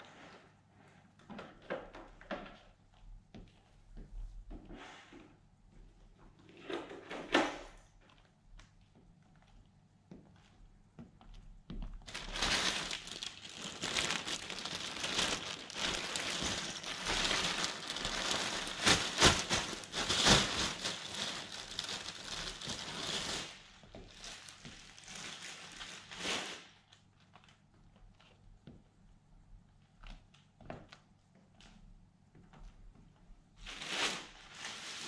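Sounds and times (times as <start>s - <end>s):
plastic bag crinkling: 12.0s - 26.8s, 33.6s - 35.0s.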